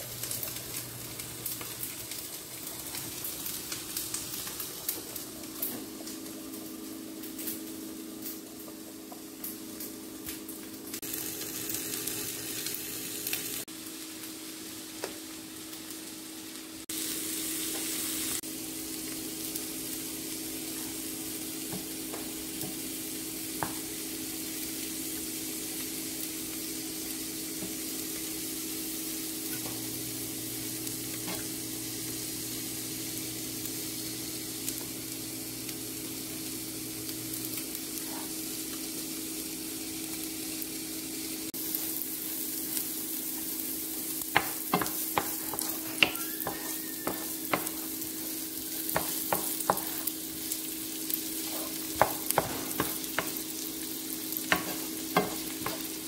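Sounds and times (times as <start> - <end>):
butter and oil sizzling in pan: 0.0 - 56.0
spatula scraping pan: 44.3 - 50.1, 51.4 - 53.6, 54.4 - 56.0.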